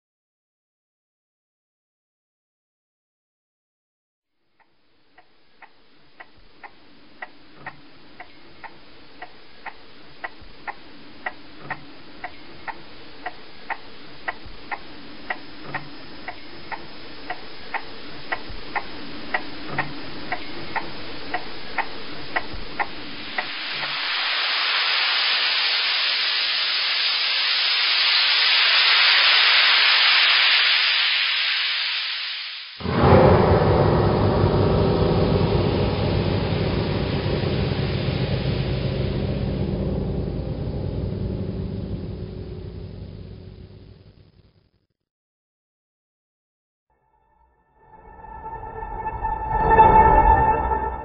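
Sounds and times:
steady ticking: 4.6s - 24.0s
hiss: 7.2s - 42.0s
loud rushing noise: 13.5s - 44.1s.

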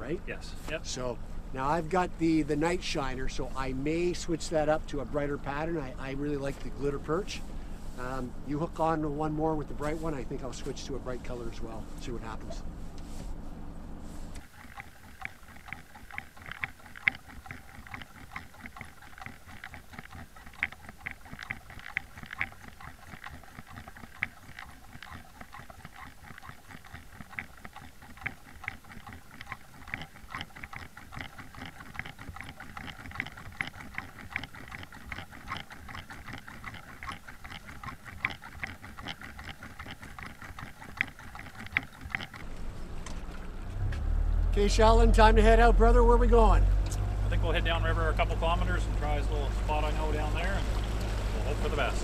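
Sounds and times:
underwater clicks and ticks: 14.4s - 43.9s.

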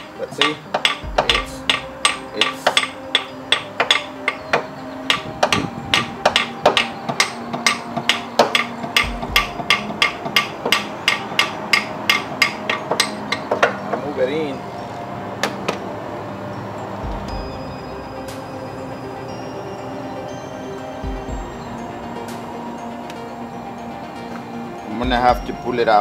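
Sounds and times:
hammer striking metal: 0.0s - 14.0s.

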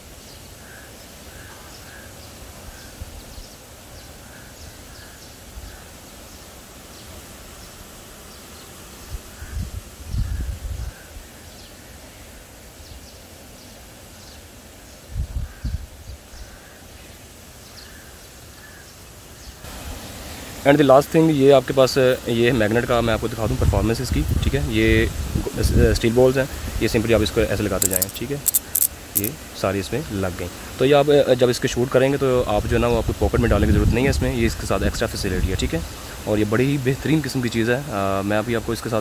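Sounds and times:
birds calling: 0.0s - 8.7s, 27.2s - 29.4s
steady outdoor noise: 0.0s - 39.0s.

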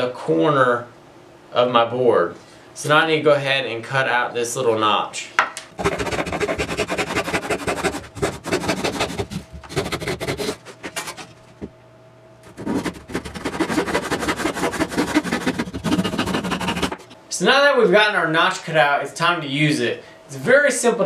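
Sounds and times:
handsaw cutting plywood: 5.8s - 11.3s, 12.5s - 17.1s.

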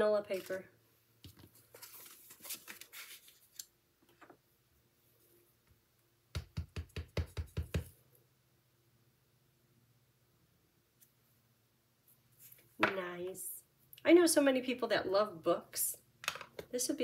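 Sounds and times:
paper rustling: 0.3s - 0.6s, 1.3s - 3.7s.

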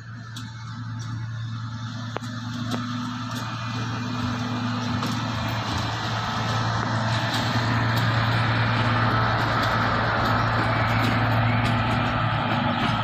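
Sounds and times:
diesel engine drone: 0.0s - 13.0s.

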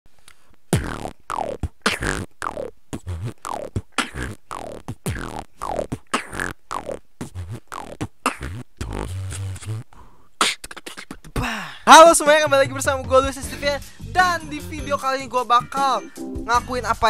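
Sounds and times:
beatboxing kick and snare: 0.7s - 11.6s.

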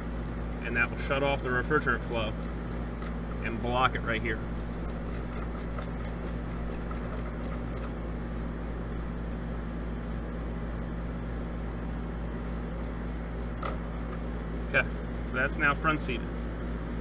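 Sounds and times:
condensing unit humming: 0.0s - 17.0s
ratcheting wrench clicking: 0.1s - 3.2s, 4.5s - 7.9s.

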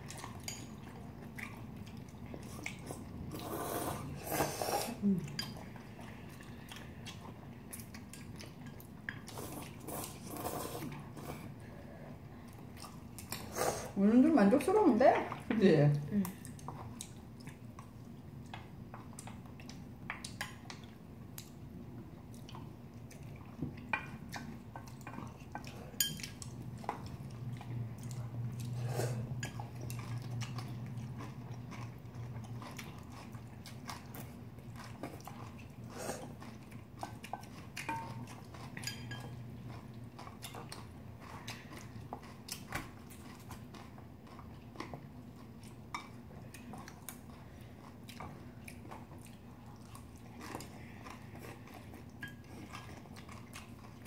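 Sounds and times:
people chewing and biting: 16.4s - 54.0s.

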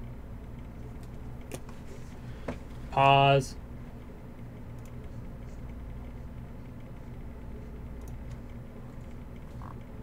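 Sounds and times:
low room hum: 0.0s - 10.0s
faint clicks: 8.0s - 8.5s.

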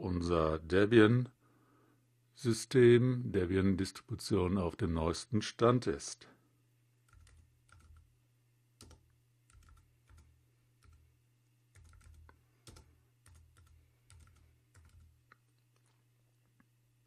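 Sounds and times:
faint typing on keyboard: 7.0s - 8.2s, 8.8s - 16.7s.

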